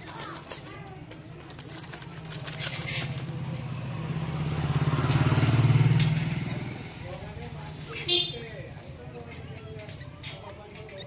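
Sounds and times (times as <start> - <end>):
motorcycle passing by: 2.4 - 7.7.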